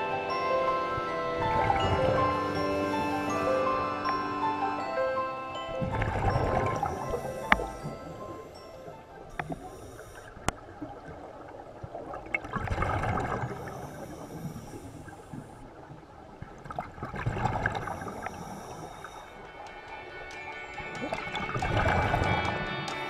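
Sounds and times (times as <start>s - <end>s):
regulator inhalation hiss: 0.3s - 10.4s, 13.5s - 15.5s, 17.8s - 19.4s
exhaled bubbles burbling underwater: 5.6s - 19.4s.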